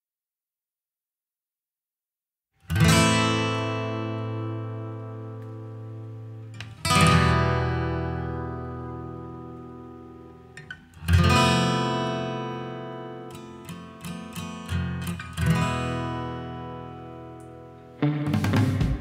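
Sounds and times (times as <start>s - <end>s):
strummed acoustic guitar chords: 2.7s - 19.0s
plucked guitar notes: 2.8s - 19.0s.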